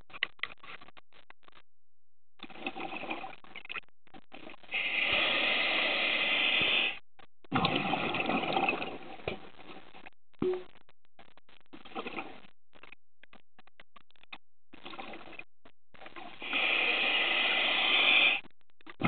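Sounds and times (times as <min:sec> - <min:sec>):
regulator inhalation hiss: 0:04.7 - 0:07.0, 0:16.4 - 0:18.4
exhalation bubbling: 0:04.7 - 0:09.2.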